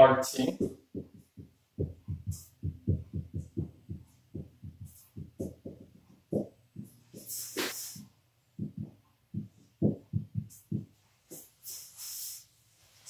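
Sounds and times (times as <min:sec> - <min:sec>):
marker knocking on whiteboard: 0:00.5 - 0:07.8, 0:08.6 - 0:11.4
brief hiss: 0:07.4 - 0:08.0.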